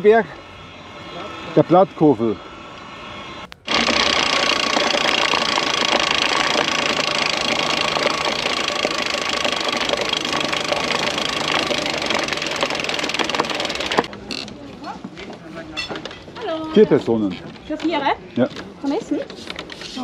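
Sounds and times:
rapid rattling clicks: 3.6 - 14.2.

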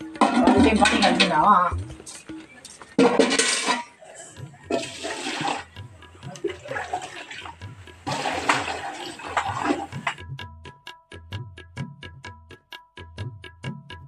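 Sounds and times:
water poured into metal bucket: 4.7 - 5.7, 6.4 - 10.2.

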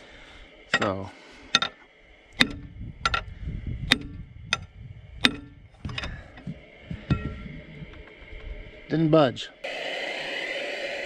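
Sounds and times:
metal-on-metal strikes ringing: 0.7 - 1.0, 3.9 - 5.6.

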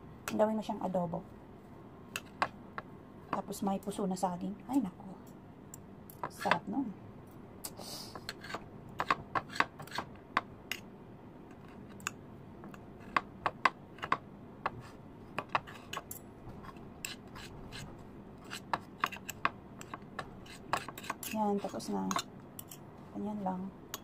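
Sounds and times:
forks clicking and scraping on plate: 15.4 - 17.8, 18.4 - 22.9.

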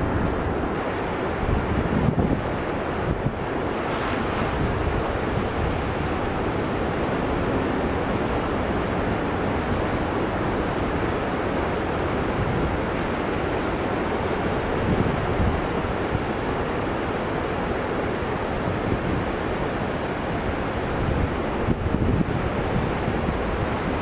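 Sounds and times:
ocean surf breaking on beach: 0.0 - 24.0.

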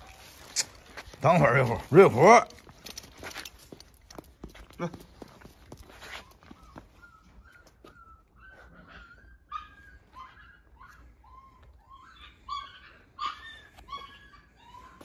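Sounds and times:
dog whimpering: 6.1 - 15.0.

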